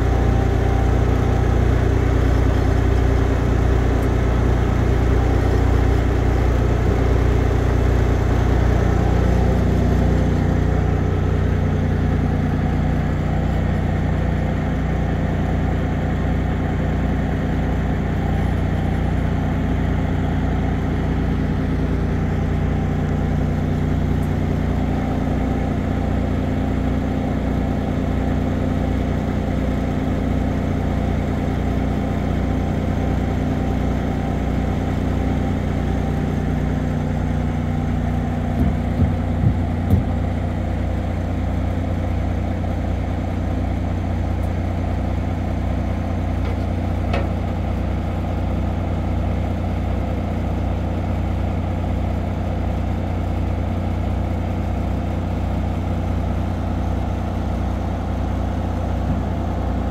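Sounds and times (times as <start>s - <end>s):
diesel truck engine idling: 0.0s - 59.9s
short knocks: 38.5s - 40.2s.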